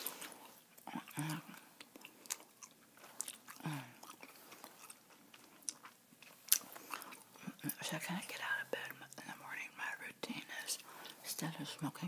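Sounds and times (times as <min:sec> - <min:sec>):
wet gum chewing: 0:00.0 - 0:07.9.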